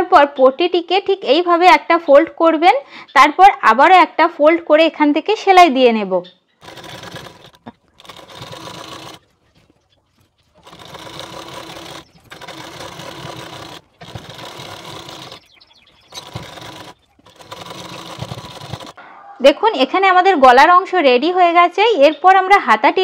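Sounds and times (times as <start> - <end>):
sewing machine stitching: 6.6 - 9.8, 10.4 - 19.0.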